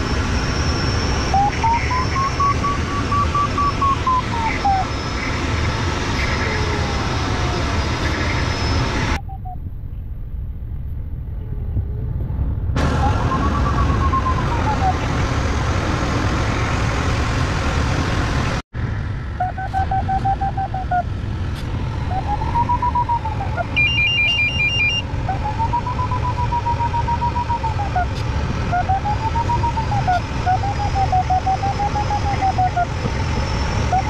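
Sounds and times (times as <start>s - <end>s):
variometer tone and beeps: 1.2s - 5.1s, 8.6s - 9.7s, 19.4s - 21.1s, 22.1s - 33.0s.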